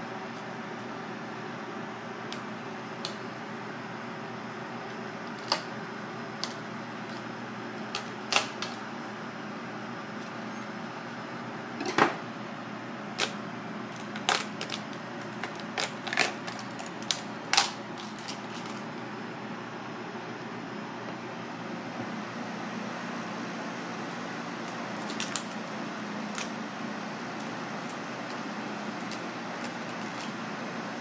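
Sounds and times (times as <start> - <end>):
steady background noise: 0.0 - 31.0
crab shell cracking: 13.2 - 18.8, 25.0 - 25.6.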